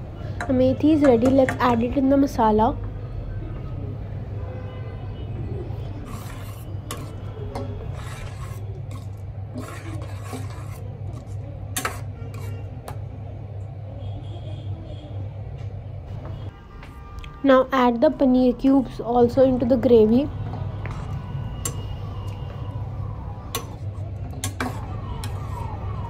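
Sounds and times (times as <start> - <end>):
metal spoon stirring in pot: 5.8 - 13.0, 20.8 - 22.5, 23.4 - 26.0.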